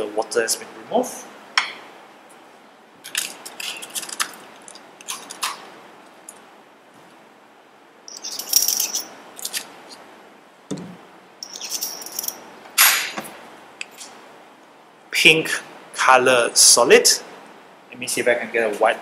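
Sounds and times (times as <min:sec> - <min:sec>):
dull knock: 0:10.7 - 0:11.0.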